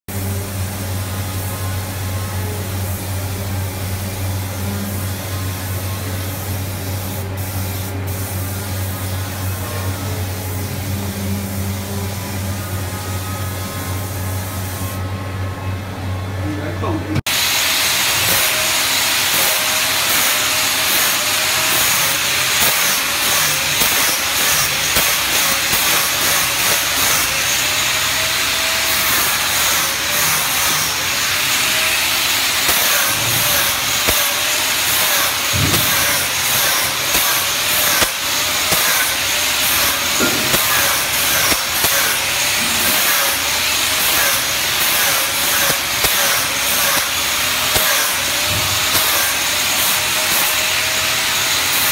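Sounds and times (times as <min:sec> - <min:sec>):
grinder rasping on metal sheet: 0:18.1 - 0:51.9.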